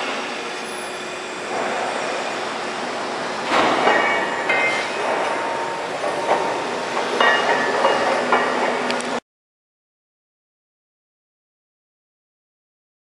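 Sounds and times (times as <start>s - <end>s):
metallic clanks with ringing: 3.5s - 9.0s.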